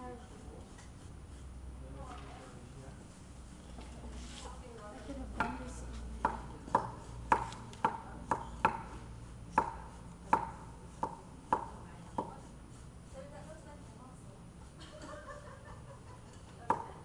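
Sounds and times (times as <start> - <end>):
knife chopping on wooden board: 6.2 - 12.5.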